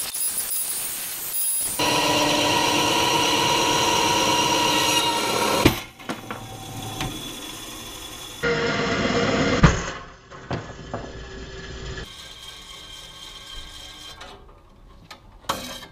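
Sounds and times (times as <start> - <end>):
bandsaw whining: 1.5 - 10.1.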